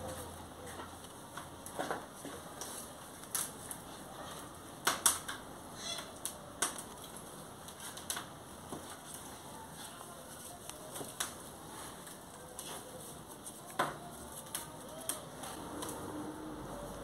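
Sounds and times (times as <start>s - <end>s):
petals rustling on cloth: 6.8s - 17.0s.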